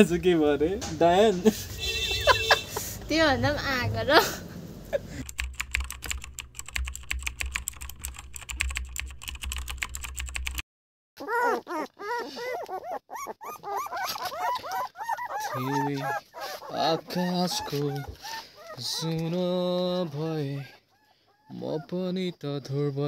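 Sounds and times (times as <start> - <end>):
typing key clicks: 5.3 - 10.6
puppies whimpering and squealing: 11.2 - 22.9.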